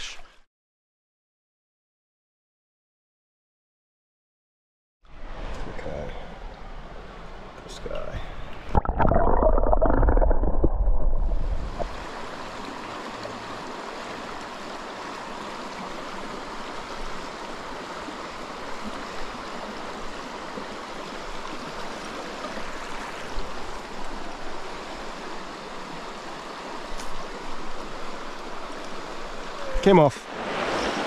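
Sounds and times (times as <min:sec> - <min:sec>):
stream flowing over stones: 0:08.0 - 0:31.0.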